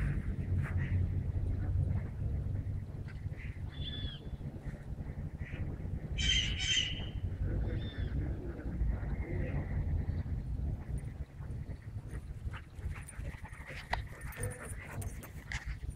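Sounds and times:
low rumble: 0:00.0 - 0:15.9
bird squawking: 0:03.7 - 0:04.3, 0:06.2 - 0:07.2.

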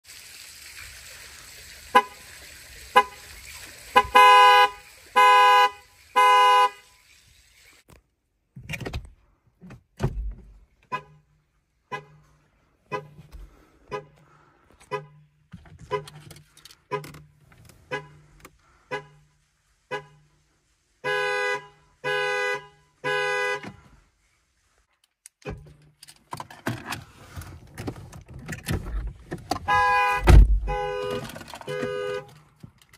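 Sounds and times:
car horn honking: 0:01.9 - 0:02.2, 0:02.9 - 0:03.2, 0:03.9 - 0:07.0, 0:11.9 - 0:12.3, 0:12.9 - 0:13.2, 0:13.9 - 0:14.2, 0:14.8 - 0:16.2, 0:17.8 - 0:18.3, 0:18.9 - 0:19.2, 0:19.9 - 0:20.2, 0:21.0 - 0:23.8, 0:29.6 - 0:32.4
loud thump: 0:30.2 - 0:30.7.

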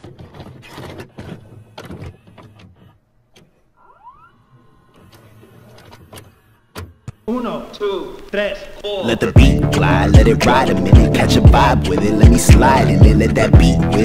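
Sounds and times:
motor whirring: 0:00.9 - 0:07.3
mechanical clunks and clicks: 0:04.5 - 0:07.2.

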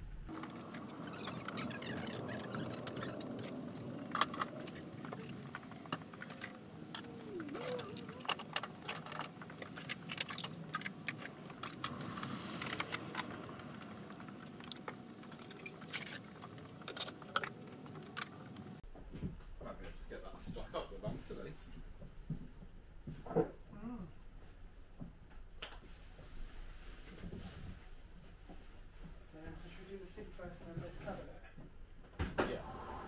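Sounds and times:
squeaky rising and falling glide: 0:00.3 - 0:05.4, 0:11.1 - 0:15.8.

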